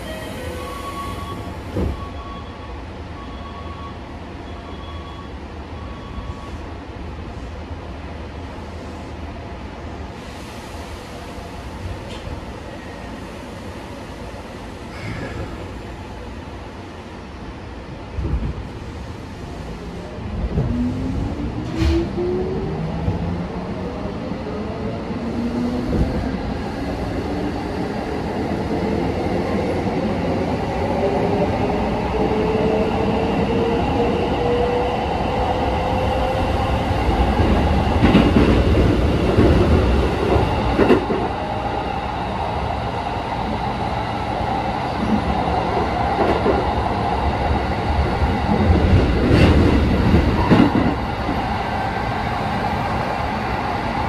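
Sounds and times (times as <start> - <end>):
train wheel rumble: 18.0 - 54.0.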